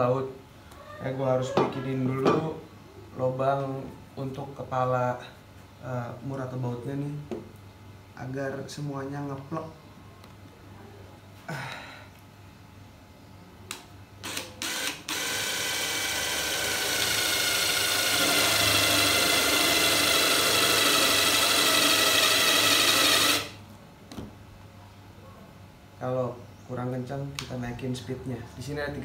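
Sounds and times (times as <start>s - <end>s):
impact driver boring into wood: 14.2s - 23.6s.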